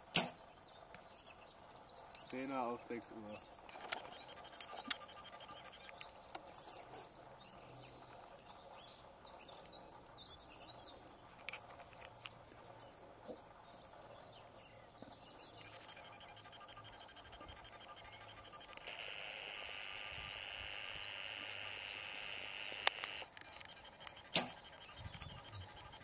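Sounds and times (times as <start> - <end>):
distant birds chirping: 0.0 - 26.0.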